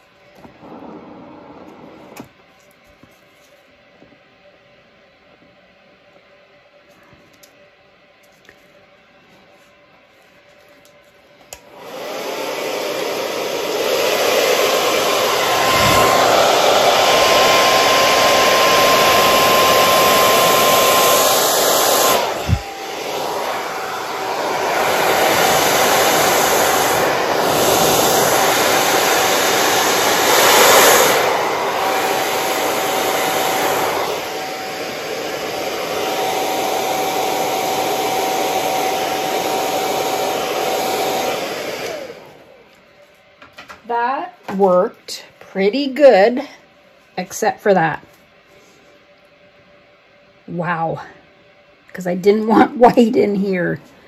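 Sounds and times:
hair dryer running: 0.0 - 2.4, 10.8 - 43.2, 52.1 - 54.0.

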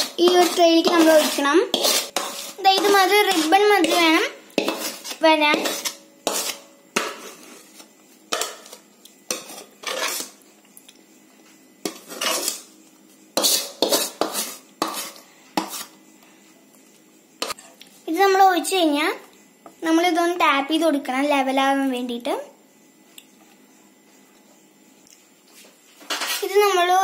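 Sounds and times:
steel spoon scraping a pan: 0.0 - 10.4, 11.8 - 16.0, 17.4 - 17.8, 26.0 - 26.8.

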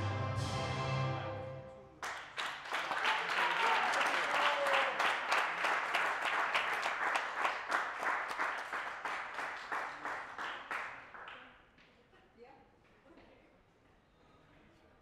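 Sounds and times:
audience applauding: 2.0 - 11.5.

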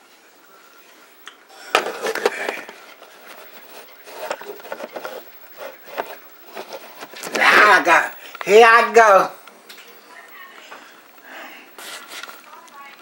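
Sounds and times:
clicks scrapes and rustling: 1.8 - 7.5.

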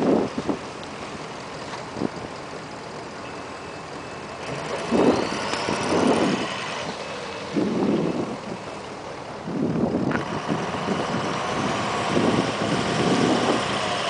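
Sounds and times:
wind buffeting microphone: 0.0 - 0.8, 4.8 - 8.8, 9.4 - 14.0.

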